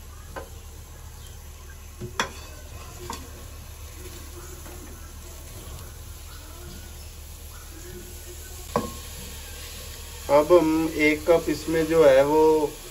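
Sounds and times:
onions tapping in a metal pot: 2.0s - 3.3s, 8.7s - 9.2s.

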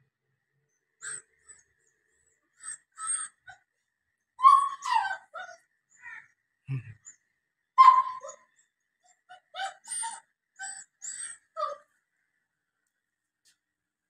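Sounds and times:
puppy whimpering: 2.6s - 3.6s, 4.4s - 5.6s, 7.8s - 8.4s, 9.2s - 11.8s.

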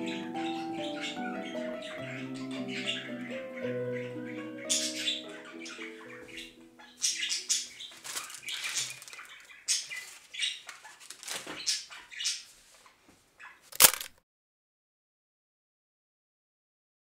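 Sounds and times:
background music: 0.0s - 7.8s
hands rustling and scratching: 7.8s - 11.6s.

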